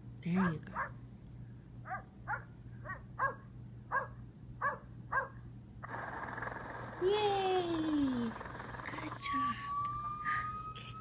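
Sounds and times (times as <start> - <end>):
cartoon dog barks: 1.9 - 5.4.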